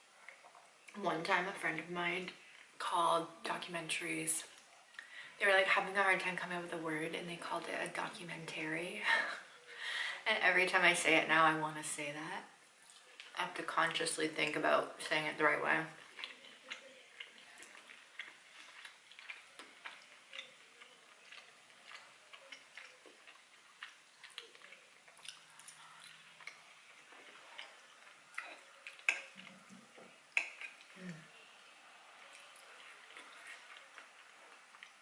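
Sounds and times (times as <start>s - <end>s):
chewing with wet mouth clicks: 0.2s - 1.0s, 12.8s - 13.4s, 15.9s - 35.0s.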